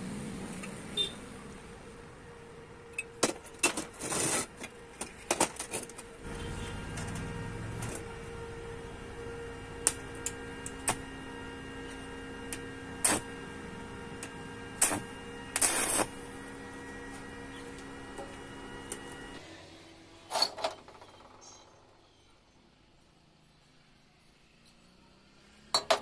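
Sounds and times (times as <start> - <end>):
welding arc humming and crackling: 3.0 - 19.5.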